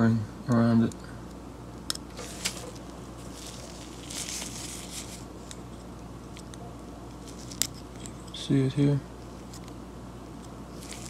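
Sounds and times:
rustle of disposable gloves: 2.1 - 5.9, 7.2 - 7.8, 10.7 - 11.0.

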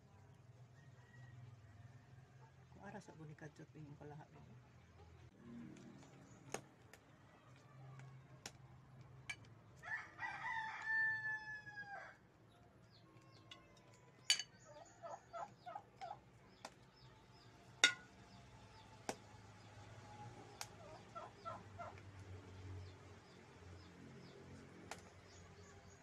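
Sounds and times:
rooster crowing: 0.7 - 2.4, 9.8 - 12.2.

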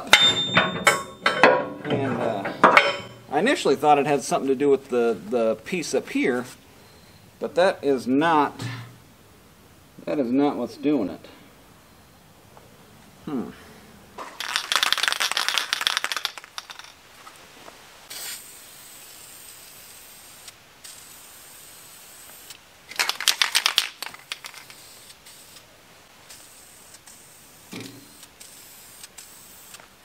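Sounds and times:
aerosol can spraying: 18.1 - 29.9.

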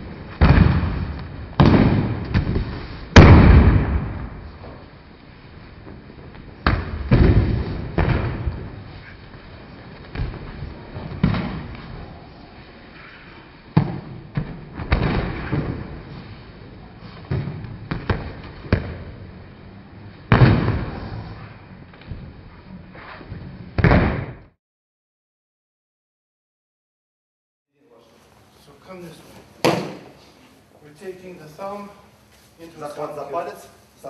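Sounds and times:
bodies slapping onto mats: 0.2 - 4.2, 6.4 - 9.0, 20.2 - 21.4, 23.0 - 24.5, 29.6 - 30.2.

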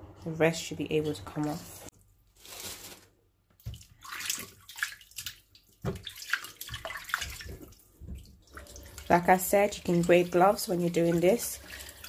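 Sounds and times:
water sloshing in plastic tub: 2.5 - 12.0.

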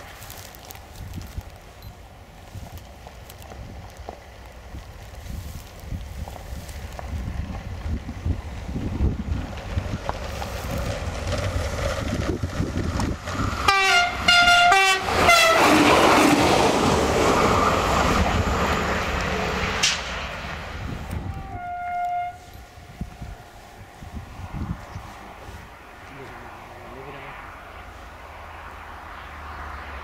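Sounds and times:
diesel railcar passing: 0.0 - 30.0
wind rumble on microphone: 0.0 - 30.0
train horn blasts: 13.6 - 15.8, 21.1 - 23.0.

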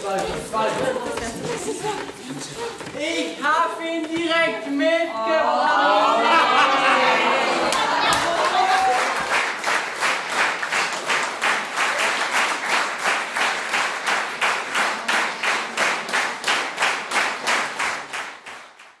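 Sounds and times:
audience clapping in unison: 7.4 - 19.0.

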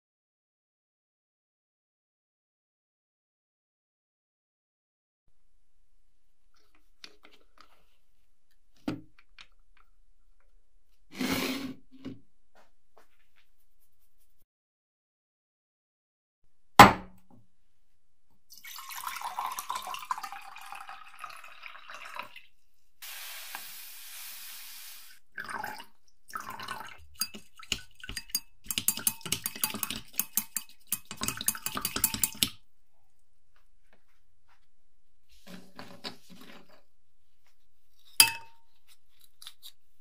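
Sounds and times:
sharp knock: 16.8 - 17.2
liquid pouring into glass jar: 18.5 - 22.5, 25.3 - 32.6
stirrer clicking against glass: 27.2 - 32.6.

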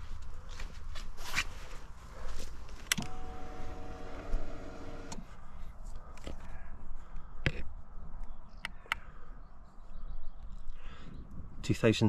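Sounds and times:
fuel pump whine: 2.9 - 5.3.

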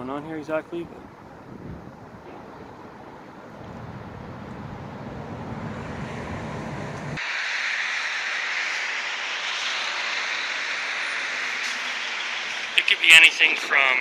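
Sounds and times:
road traffic: 0.0 - 14.0
wind: 0.0 - 14.0
bright hiss: 7.2 - 14.0.

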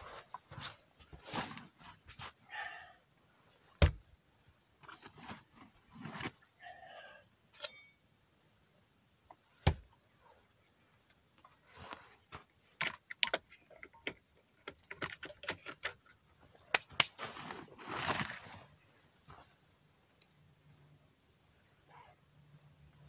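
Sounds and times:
backpack rustling: 17.1 - 18.7.

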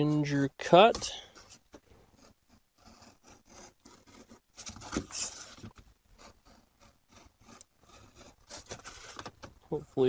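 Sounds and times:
hobby knife scraping gasket material: 2.2 - 5.6, 6.2 - 9.2.

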